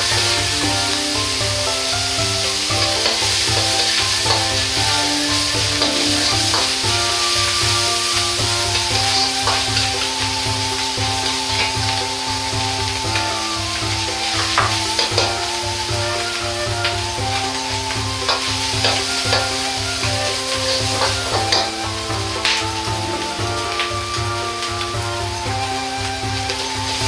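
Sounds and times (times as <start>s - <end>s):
metal ladle scraping wok: 0.0s - 12.1s, 20.4s - 24.6s
meat sizzling in hot oil: 0.0s - 27.0s.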